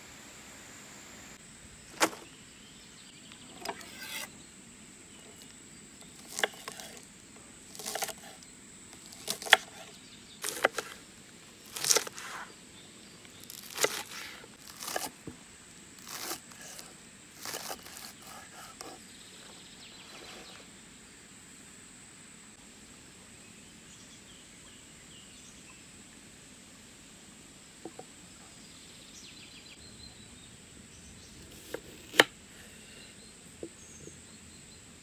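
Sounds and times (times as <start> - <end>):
running water hiss: 0.0 - 8.9, 19.6 - 29.7
knife slicing on wooden board: 3.6 - 4.3, 6.2 - 7.0, 7.7 - 8.3, 9.0 - 11.0, 11.7 - 12.5, 13.5 - 15.1, 16.0 - 19.0, 31.5 - 32.3.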